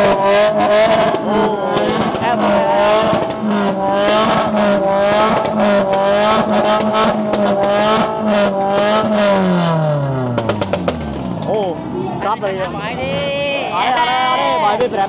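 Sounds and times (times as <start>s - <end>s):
car engine revving: 0.0s - 13.7s.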